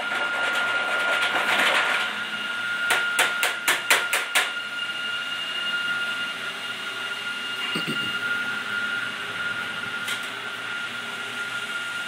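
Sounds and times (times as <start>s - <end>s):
high-pitched whine: 4.3s - 12.0s.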